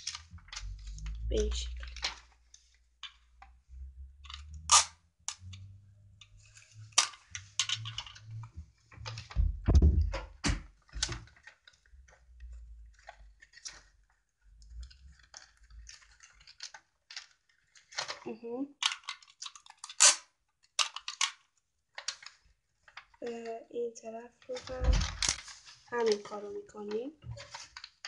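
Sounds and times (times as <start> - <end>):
box knocking on wooden table: 9.3 - 10.6.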